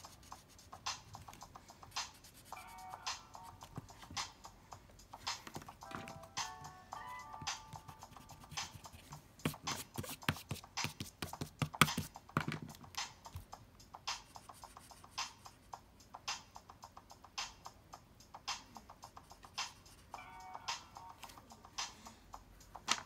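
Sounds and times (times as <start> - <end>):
pen tapping and scratching paper: 5.2 - 6.1, 7.5 - 13.4.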